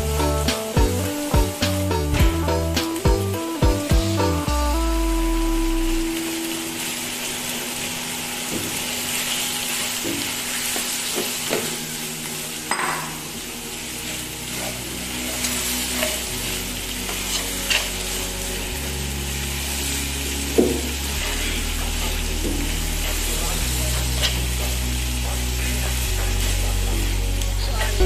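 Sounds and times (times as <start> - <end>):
meat sizzling in wok: 0.0 - 28.0
spatula scraping pan: 14.4 - 16.4.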